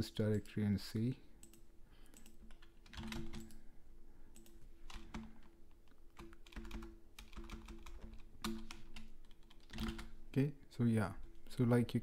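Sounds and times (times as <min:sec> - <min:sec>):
typing on computer keyboard: 0:01.4 - 0:03.6, 0:04.3 - 0:05.5, 0:06.1 - 0:10.2.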